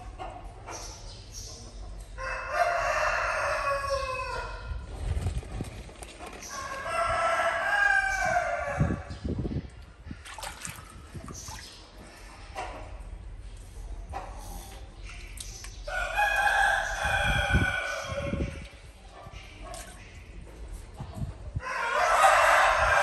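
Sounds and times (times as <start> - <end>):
rooster crowing: 21.6 - 23.0.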